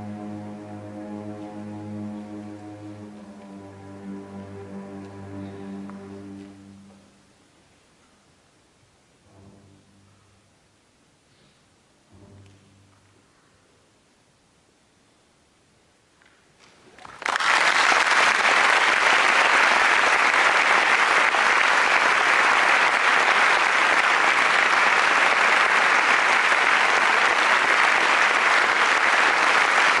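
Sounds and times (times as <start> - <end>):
audience applause: 17.0 - 30.0.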